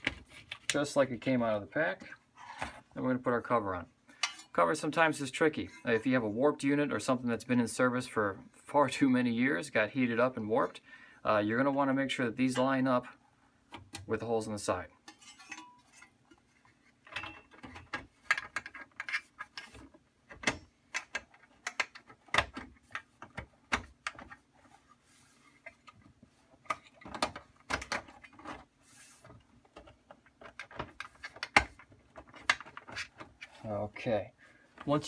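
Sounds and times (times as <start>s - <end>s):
metal clicks taps and scrapes: 4.2s - 4.5s, 15.0s - 24.4s.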